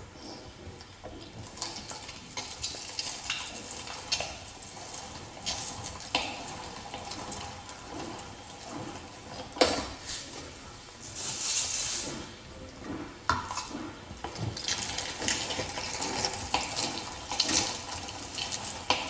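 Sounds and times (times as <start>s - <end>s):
meat squishing: 0.9s - 19.0s
meat grinder clicking: 13.4s - 19.0s.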